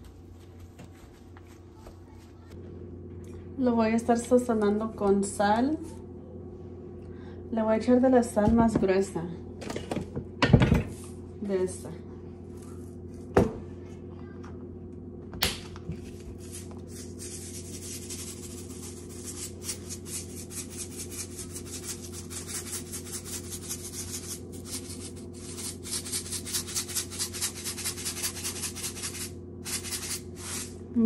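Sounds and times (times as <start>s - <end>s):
low hum: 0.0s - 31.0s
salt grinder grinding: 16.4s - 30.8s.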